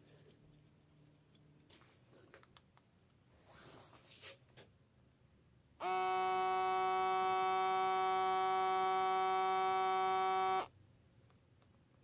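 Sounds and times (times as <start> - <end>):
air pump motor whine: 5.8 - 10.7.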